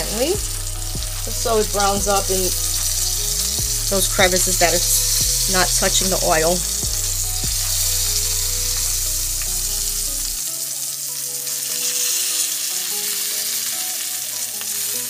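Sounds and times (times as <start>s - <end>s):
mushrooms sizzling in a frying pan: 0.0s - 15.0s.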